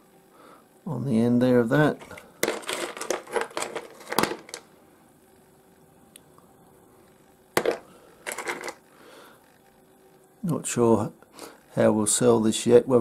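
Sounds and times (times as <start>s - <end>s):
stones knocking and scraping: 2.0s - 4.6s, 7.6s - 8.8s.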